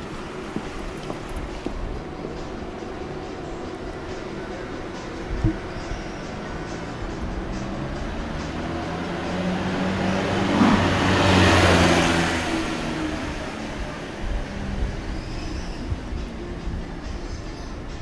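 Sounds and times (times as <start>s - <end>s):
car driving past: 7.6s - 13.7s.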